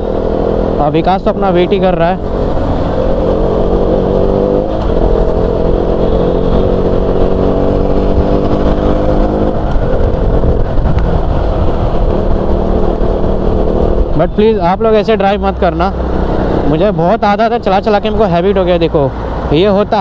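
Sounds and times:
motorcycle engine running: 0.0 - 18.7
road rumble: 0.0 - 20.0
wind on microphone: 2.3 - 14.2.

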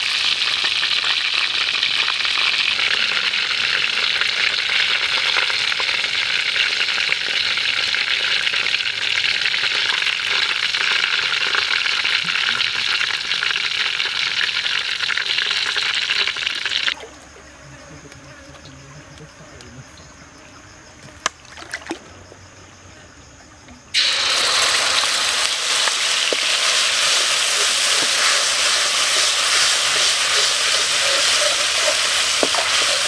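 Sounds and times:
chicken deep-frying in oil: 0.0 - 17.0, 23.9 - 33.0.

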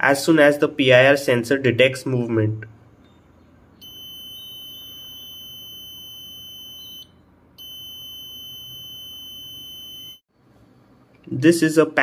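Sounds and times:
high-pitched alarm buzzer: 3.8 - 10.2.

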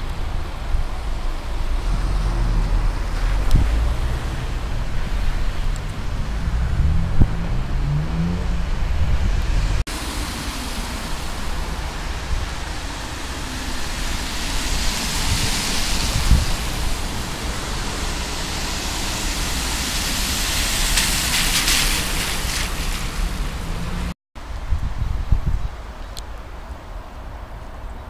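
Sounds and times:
car tyres hissing on wet road: 0.0 - 8.4, 9.1 - 24.2
wind on microphone: 0.0 - 27.3.

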